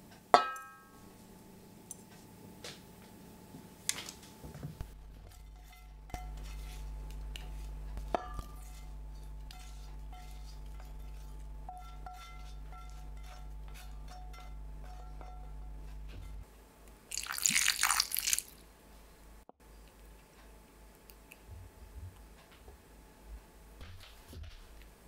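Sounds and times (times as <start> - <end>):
steady low hum: 0.0 - 17.1
pan clinking against glass: 0.4 - 0.9
peppers scraping out of pan: 4.8 - 16.4.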